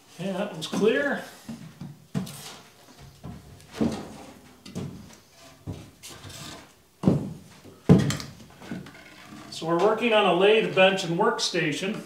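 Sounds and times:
wooden boards knocking and scraping: 0:01.7 - 0:09.4.

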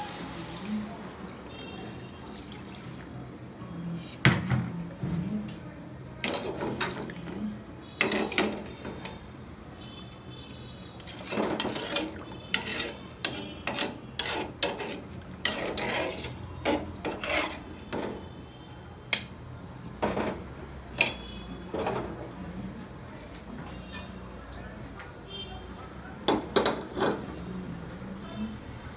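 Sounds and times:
metal spatula scraping a pot: 0:06.2 - 0:07.0, 0:11.0 - 0:18.0, 0:26.6 - 0:27.5.

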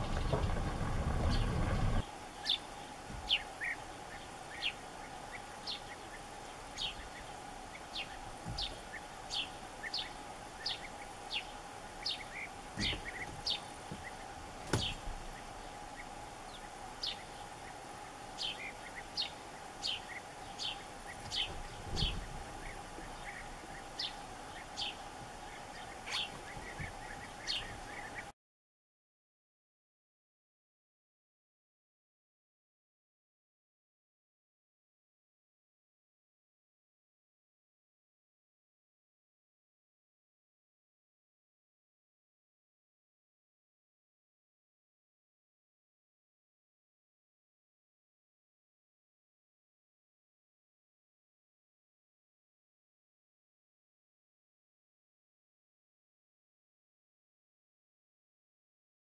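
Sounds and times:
low rumble: 0:00.0 - 0:02.0
bee-eaters calling: 0:00.0 - 0:28.3.

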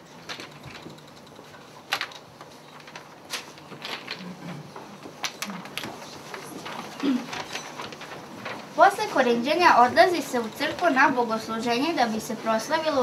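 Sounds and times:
paper rustling and crackling: 0:02.0 - 0:04.4, 0:05.2 - 0:09.0.

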